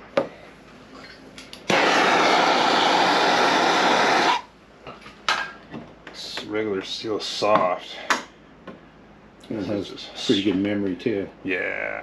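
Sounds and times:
air blower rushing: 1.7s - 4.5s.

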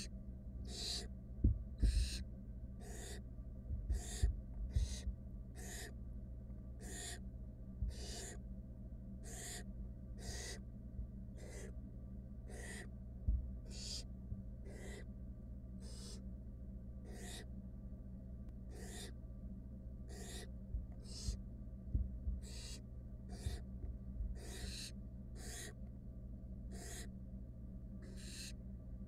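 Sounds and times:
owl nestlings hissing: 0.0s - 1.1s, 1.8s - 3.2s, 3.9s - 6.0s, 6.8s - 7.2s, 7.9s - 8.4s, 9.2s - 9.6s, 10.2s - 10.6s, 11.4s - 11.8s, 12.4s - 12.9s, 13.6s - 15.1s, 15.8s - 16.2s, 17.0s - 17.5s, 18.7s - 19.1s, 20.1s - 21.4s, 22.4s - 23.6s, 24.4s - 25.8s, 26.7s - 27.1s, 28.0s - 28.6s
low hum: 0.0s - 29.0s
low thumps: 1.4s - 2.2s, 3.7s - 5.2s, 13.2s - 13.6s, 20.7s - 22.5s.

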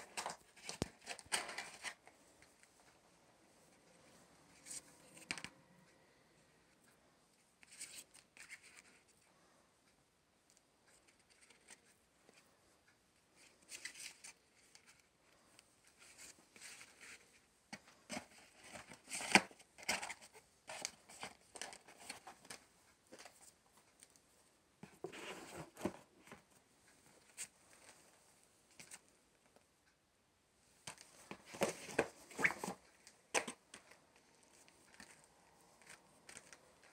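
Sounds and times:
cardboard sliding and rustling: 24.9s - 26.4s.

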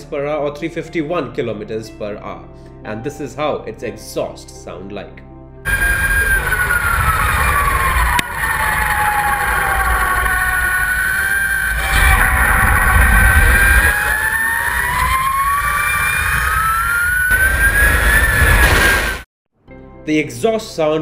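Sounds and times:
electric motorcycle drivetrain whine: 5.7s - 19.2s
wind rushing: 5.7s - 19.2s.

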